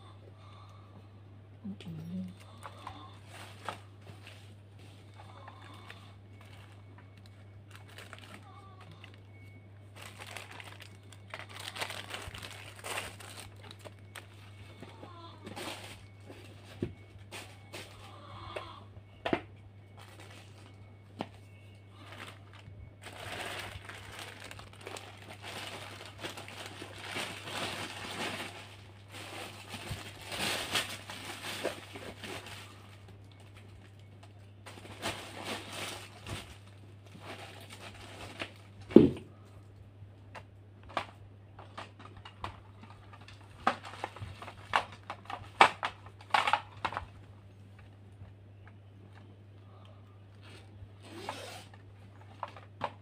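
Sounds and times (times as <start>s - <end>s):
steady low hum: 0.0s - 53.0s
plastic packaging crinkling: 2.1s - 18.0s, 19.9s - 39.1s, 40.8s - 48.0s.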